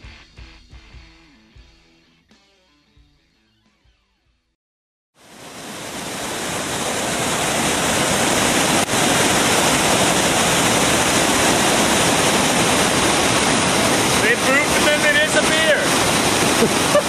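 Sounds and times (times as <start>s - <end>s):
waterfall rushing: 5.2s - 17.0s.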